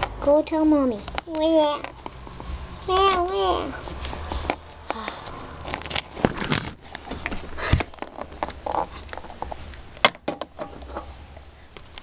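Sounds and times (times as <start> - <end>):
plastic toys tapping and knocking: 7.0 - 11.0.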